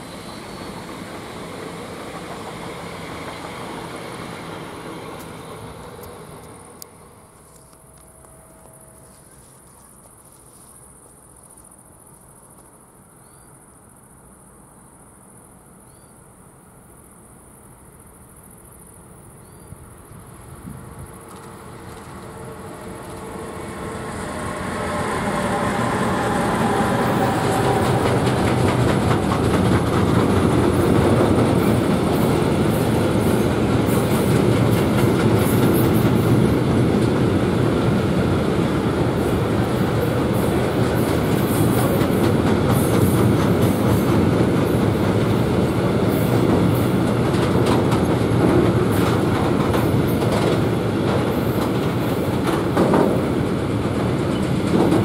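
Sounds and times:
electric locomotives passing: 0.0s - 11.4s, 16.4s - 55.0s
freight wagons rumbling past: 21.4s - 55.0s
wheels clicking over rail joints: 25.6s - 37.4s, 39.7s - 55.0s.

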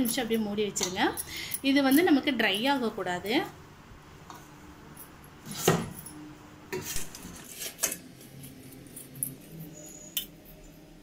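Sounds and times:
steel bowls clinking and scraping: 6.8s - 10.7s.

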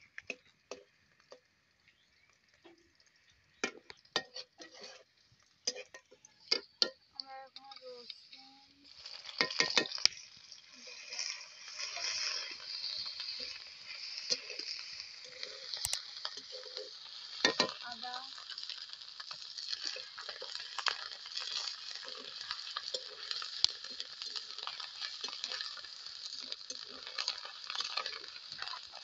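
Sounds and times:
onions sizzling in hot oil: 0.0s - 29.0s
metal spatula scraping pan: 4.2s - 6.6s, 9.0s - 10.2s, 10.8s - 17.8s, 19.5s - 29.0s
spatula striking pan: 9.3s - 10.0s.

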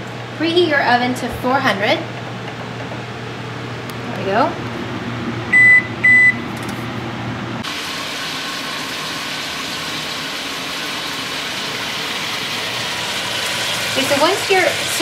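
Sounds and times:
oven control beeping: 5.4s - 6.8s
meat sizzling in oil: 7.6s - 15.0s.

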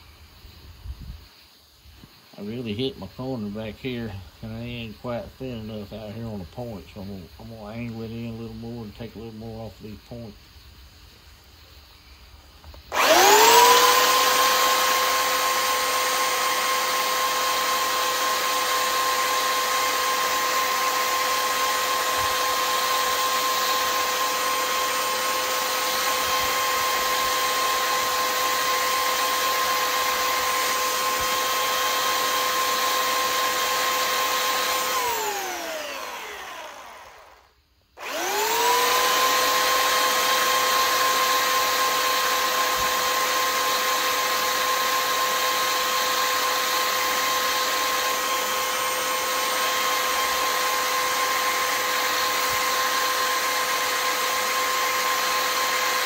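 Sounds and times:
electric sander whine: 12.6s - 56.0s.

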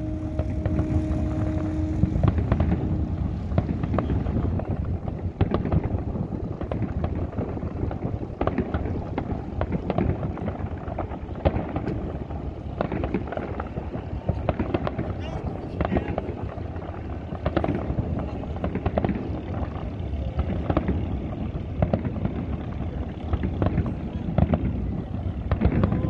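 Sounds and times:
steady two-pitch tone: 0.0s - 5.2s
fireworks bangs and crackles: 0.0s - 26.0s.

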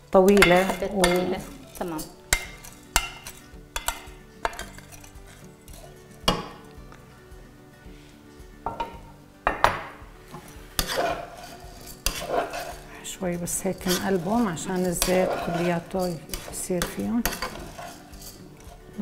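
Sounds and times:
spoon clinking against pot: 0.2s - 6.7s, 10.4s - 12.8s, 13.6s - 18.4s
oil sizzling: 10.2s - 19.0s.

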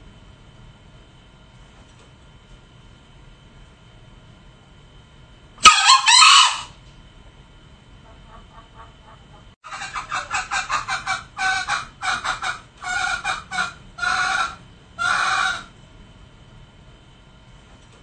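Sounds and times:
junglefowl clucking and calling: 5.6s - 6.8s, 8.0s - 15.7s.

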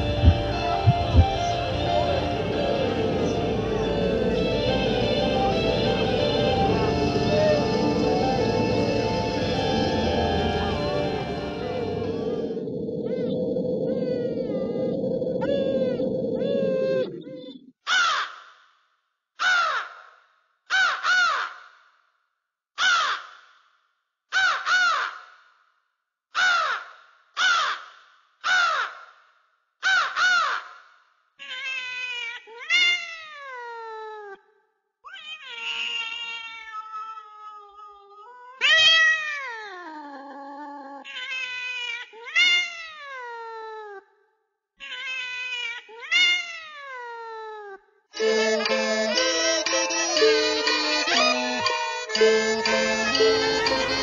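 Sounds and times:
animal meowing calls: 12.1s - 17.6s.

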